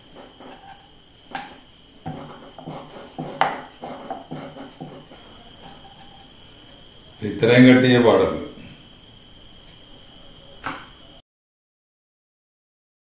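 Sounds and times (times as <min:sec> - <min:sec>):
rolling pin knocks: 0:00.0 - 0:06.2
rolling pin rolling dough: 0:00.0 - 0:07.2.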